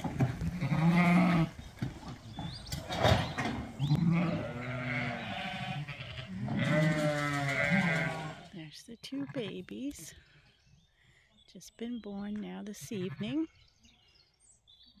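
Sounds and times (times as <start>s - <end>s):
sheep bleating: 0.5s - 1.5s, 3.9s - 8.5s, 12.8s - 13.4s.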